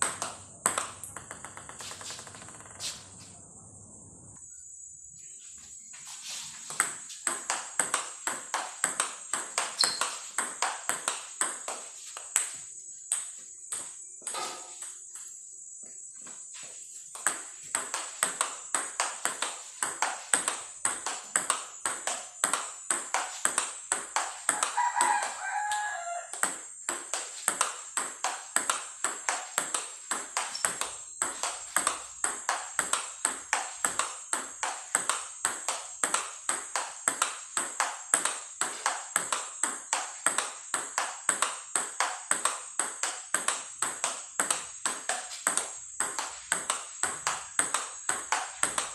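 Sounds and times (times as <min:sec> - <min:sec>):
table tennis ball clicking: 0:00.0 - 0:02.7, 0:07.3 - 0:12.3, 0:17.2 - 0:48.9
rooster crowing: 0:24.5 - 0:26.4.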